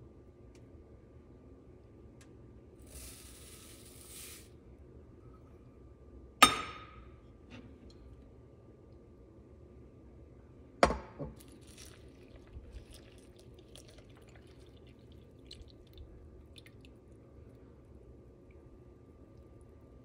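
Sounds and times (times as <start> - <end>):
milk pouring onto oats: 11.4 - 20.0.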